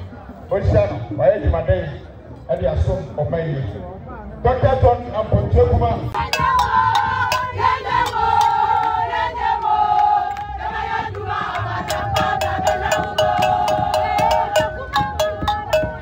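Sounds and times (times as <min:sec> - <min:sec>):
rhythmic handclaps: 0:06.2 - 0:16.0.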